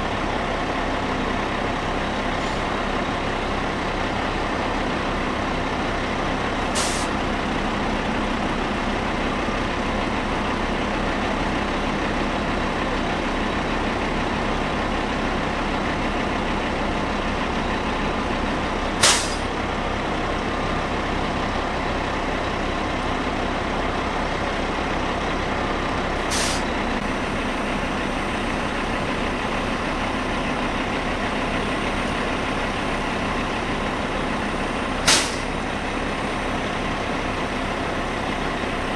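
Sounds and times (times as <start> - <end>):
heavy diesel machinery running: 0.0 - 38.9.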